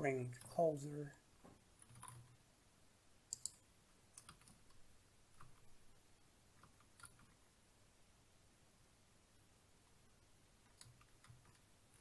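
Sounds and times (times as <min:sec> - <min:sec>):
faint computer clicks: 0:03.3 - 0:03.6.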